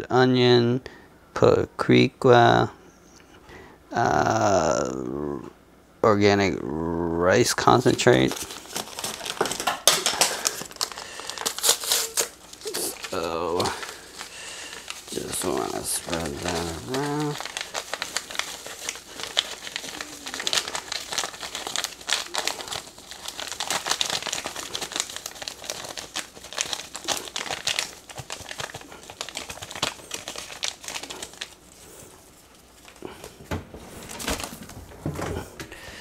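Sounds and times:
paper packet crinkling: 0:07.7 - 0:36.0.

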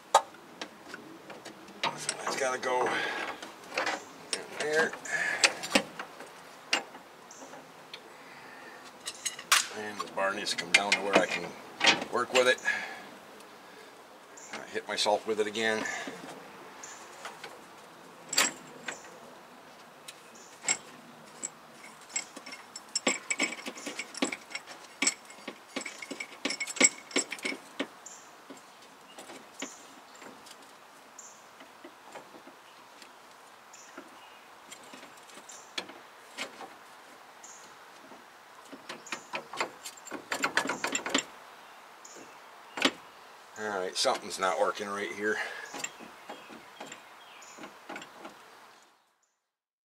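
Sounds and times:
steel tools clinking: 0:20.6 - 0:27.9.

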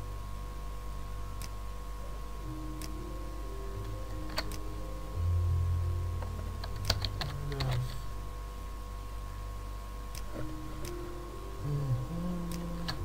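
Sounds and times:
low hum: 0:00.0 - 0:13.0
computer keyboard keystrokes: 0:06.6 - 0:07.9.

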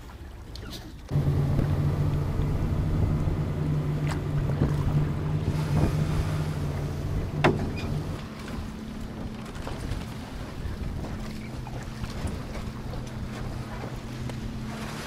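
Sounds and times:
outboard motor drone: 0:01.0 - 0:15.0
wind on microphone: 0:01.1 - 0:08.2
water rushing: 0:01.1 - 0:15.0.

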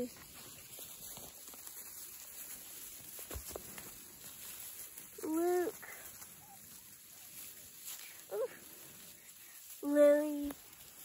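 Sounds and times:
shuffling through dry leaves: 0:00.0 - 0:11.0.

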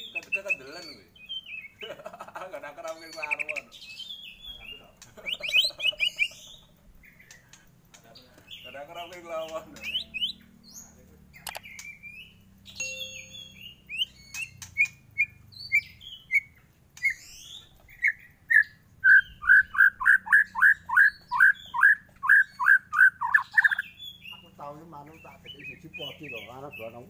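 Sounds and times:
bird singing whistled notes: 0:00.0 - 0:01.8, 0:09.8 - 0:24.5, 0:25.1 - 0:27.0.

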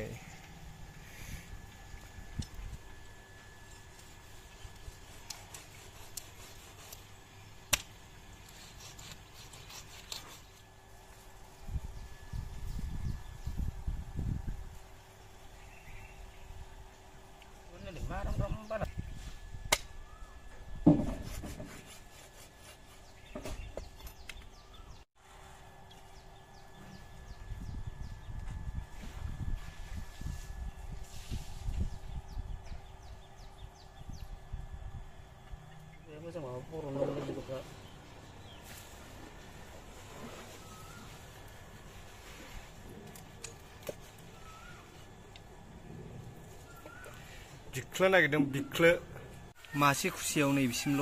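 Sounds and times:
palm striking knife blade: 0:19.7 - 0:19.9.

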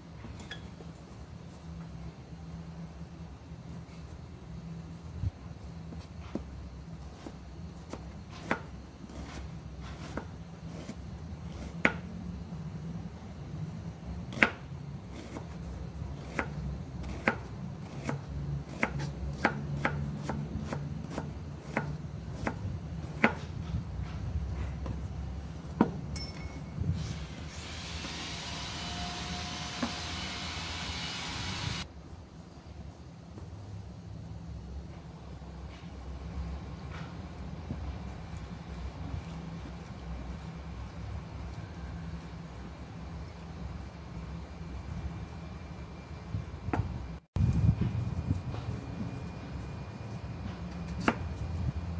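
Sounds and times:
steady hiss: 0:26.8 - 0:34.1.

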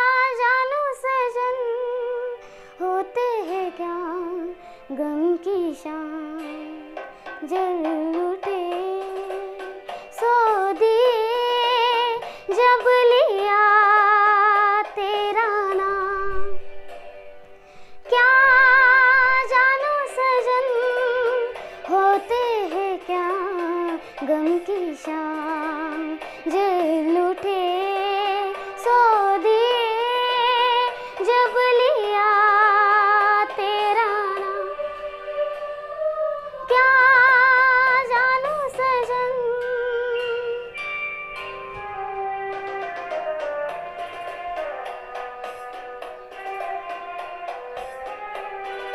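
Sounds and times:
girl singing: 0:00.0 - 0:16.8, 0:17.9 - 0:40.8, 0:41.7 - 0:48.9.

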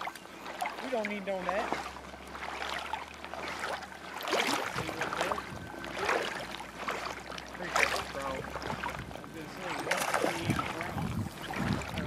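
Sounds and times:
river water sloshing and splashing: 0:00.0 - 0:12.0.

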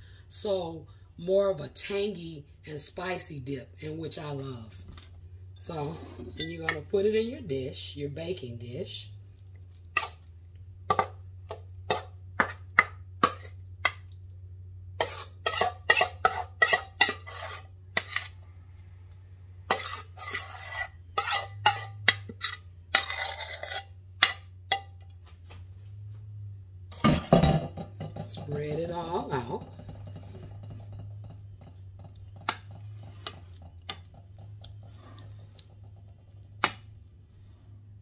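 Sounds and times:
spoon scraping metal bowl: 0:05.7 - 0:06.8, 0:15.0 - 0:18.5, 0:19.7 - 0:25.0, 0:28.4 - 0:36.9
spoon clinking on metal bowl: 0:06.4 - 0:06.8.

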